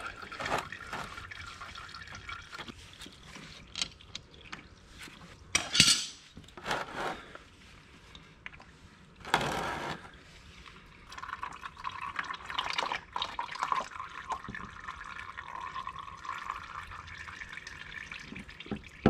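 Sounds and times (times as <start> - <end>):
oil trickling into bucket: 0.0 - 5.5, 10.9 - 19.0.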